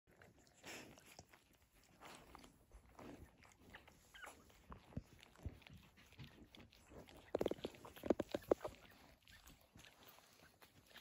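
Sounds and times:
puppies snuffling and suckling: 0:00.1 - 0:11.0
soft sniffs: 0:00.6 - 0:01.3.

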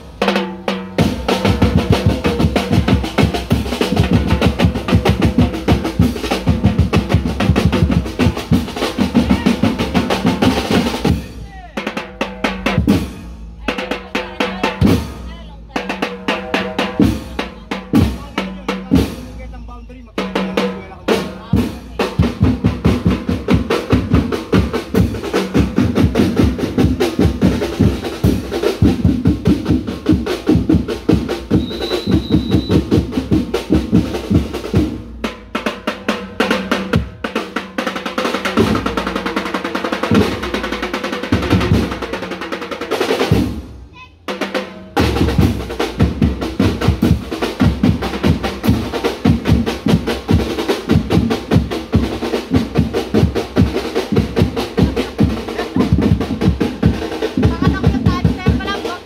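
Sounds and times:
marching drum band: 0:00.0 - 0:59.0.

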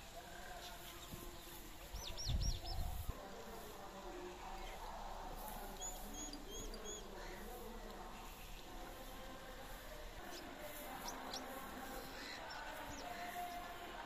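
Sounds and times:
small bird chirping: 0:05.8 - 0:07.4.

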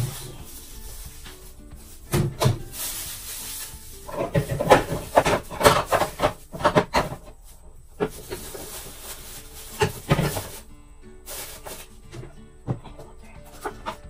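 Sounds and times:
items knocking on fridge shelves: 0:00.0 - 0:10.6
plastic bags rustling: 0:00.0 - 0:12.4, 0:13.1 - 0:14.0
background music: 0:00.0 - 0:14.0.

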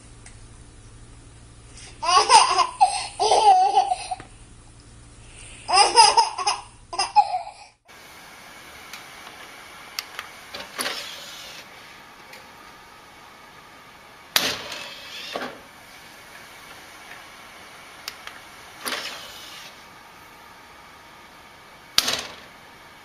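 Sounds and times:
baby giggling: 0:02.0 - 0:04.2, 0:05.7 - 0:07.8.

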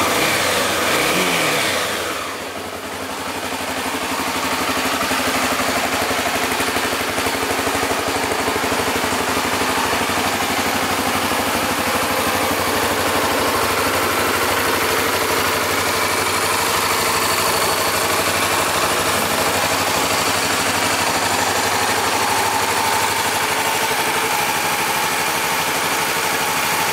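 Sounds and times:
motorcycle engine idling: 0:00.0 - 0:26.9.

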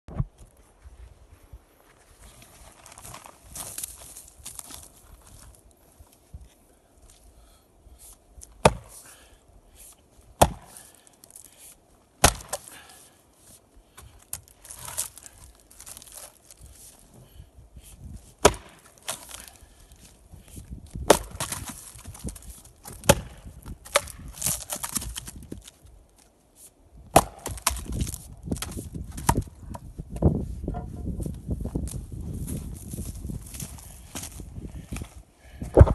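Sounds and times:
axe splitting wood: 0:08.6 - 0:09.1, 0:10.4 - 0:11.0, 0:12.2 - 0:13.0, 0:18.4 - 0:19.7, 0:20.9 - 0:25.7, 0:27.1 - 0:29.5.

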